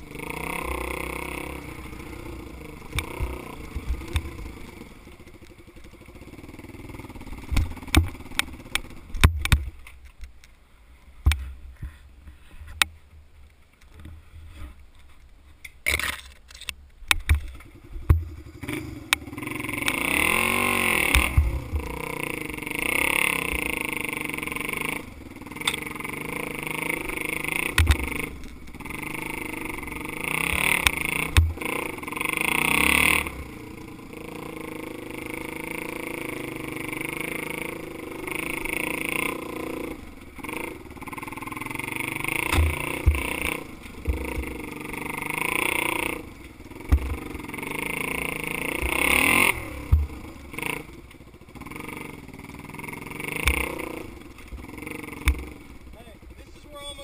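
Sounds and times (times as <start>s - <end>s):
dirt bike engine revving: 0.0s - 9.8s, 17.2s - 57.0s
sharp thumps from bumps: 7.2s - 10.4s, 15.7s - 19.3s, 20.9s - 22.0s, 27.7s - 28.4s, 30.5s - 31.9s, 42.3s - 45.2s, 46.1s - 50.9s, 53.2s - 56.7s.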